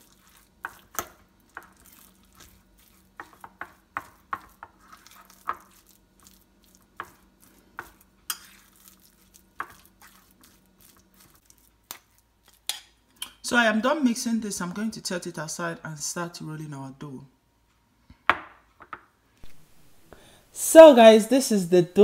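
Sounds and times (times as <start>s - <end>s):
fork scraping ceramic plate: 7.8s - 8.9s.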